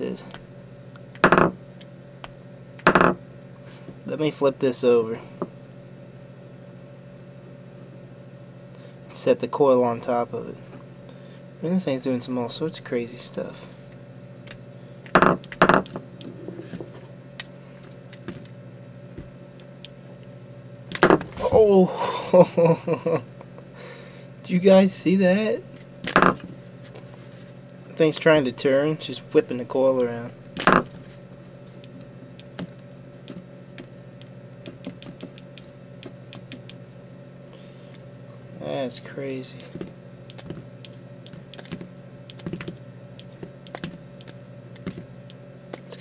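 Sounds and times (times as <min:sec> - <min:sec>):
steady low hum: 0:00.0 - 0:46.0
magnet clicks and ticks: 0:40.3 - 0:46.0.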